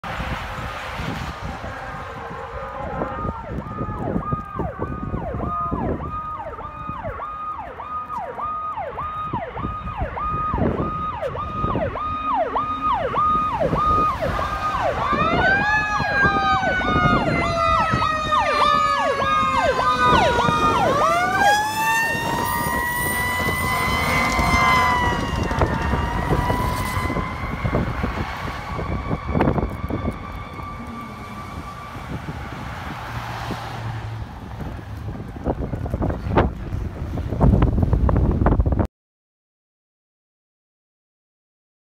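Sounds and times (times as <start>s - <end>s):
electronic siren cycling rapidly: 1.5s - 32.6s.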